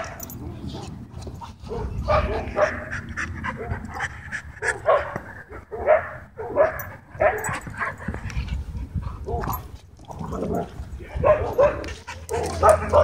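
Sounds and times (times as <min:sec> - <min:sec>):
dog barks: 0:00.0 - 0:00.9, 0:01.6 - 0:03.9, 0:04.6 - 0:07.9, 0:10.6 - 0:13.0
dogs panting hard: 0:00.0 - 0:05.7, 0:06.7 - 0:09.8, 0:11.2 - 0:13.0.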